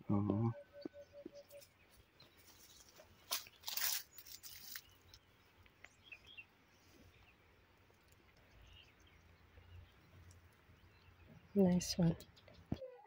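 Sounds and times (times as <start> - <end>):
faint bird chirps: 0.0 - 7.4.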